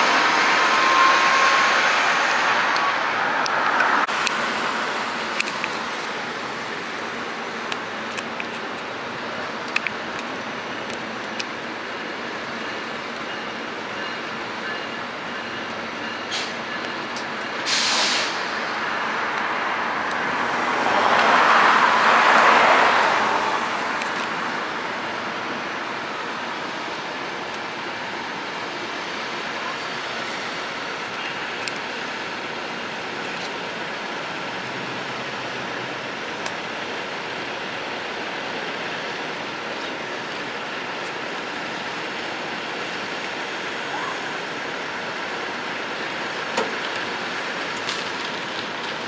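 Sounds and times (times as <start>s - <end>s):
vehicle passing close: 0.0s - 5.2s, 18.7s - 24.8s
drone of traffic: 0.0s - 49.0s
hiss of air brakes: 16.3s - 16.6s, 17.6s - 18.8s.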